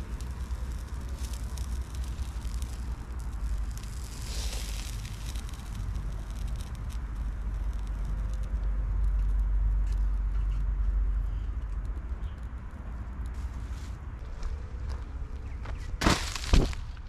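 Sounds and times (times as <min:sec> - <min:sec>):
wood fire crackling and popping: 0:00.0 - 0:13.6.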